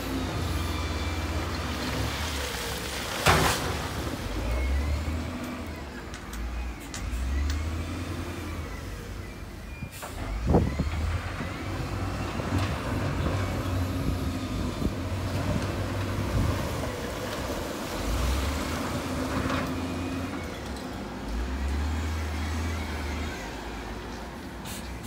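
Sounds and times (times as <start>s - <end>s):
diesel engine rumbling under load: 0.0s - 25.0s.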